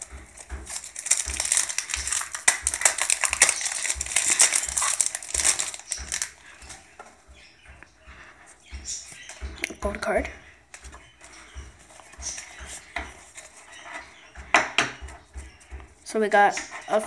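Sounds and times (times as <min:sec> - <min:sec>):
foil wrapper crinkling: 0:00.0 - 0:06.8.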